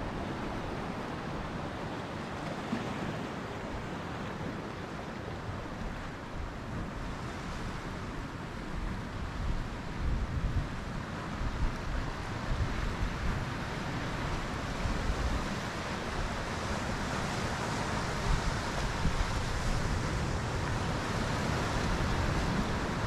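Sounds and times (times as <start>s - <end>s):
steady wind: 0.0s - 23.0s
surf on rocky beach: 0.0s - 23.0s.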